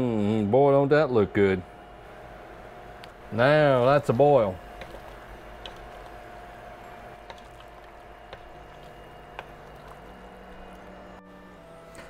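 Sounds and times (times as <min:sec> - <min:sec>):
water boiling and bubbling: 0:01.8 - 0:11.2.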